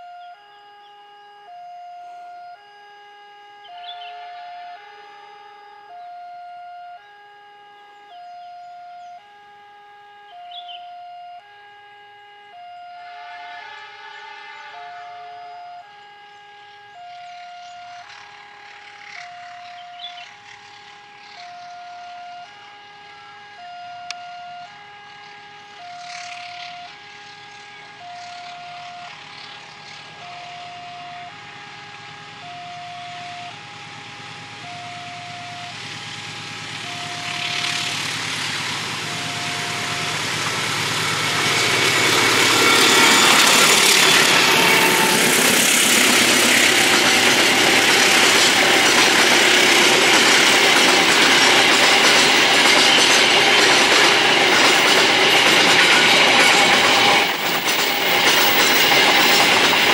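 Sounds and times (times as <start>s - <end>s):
diesel locomotive engine roaring: 0.0s - 59.9s
level crossing alarm two tones: 14.6s - 16.0s, 32.4s - 33.6s, 34.5s - 59.9s
wagon wheels clacking on rails: 37.4s - 59.9s.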